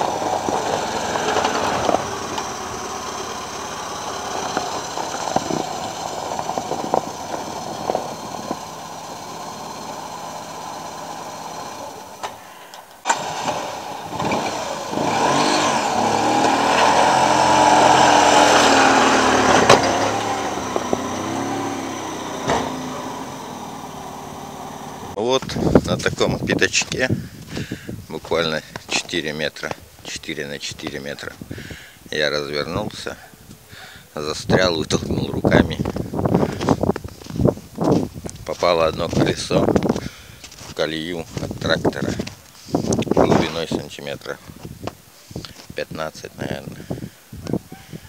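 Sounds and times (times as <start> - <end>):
small car engine revving: 0.0 - 12.4, 13.0 - 25.2.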